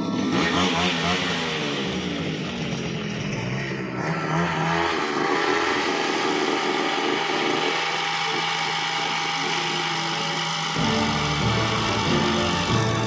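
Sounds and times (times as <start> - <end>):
two-stroke brush cutter engine running: 0.0 - 13.0.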